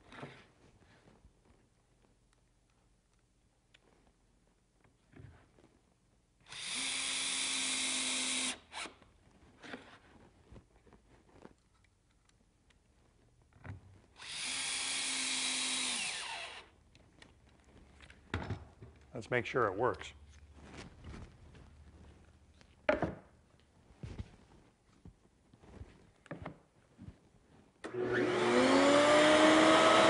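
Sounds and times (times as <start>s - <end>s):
cordless drill driving screws: 6.5s - 9.0s, 14.2s - 16.7s.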